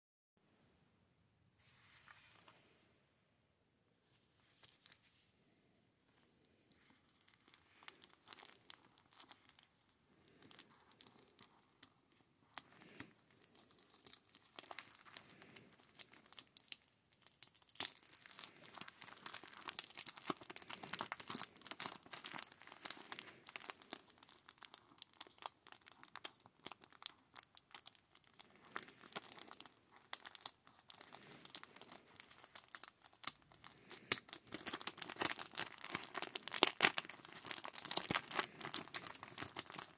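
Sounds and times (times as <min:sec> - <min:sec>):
plastic sleeves crinkling: 0:04.1 - 0:05.2, 0:06.0 - 0:39.9.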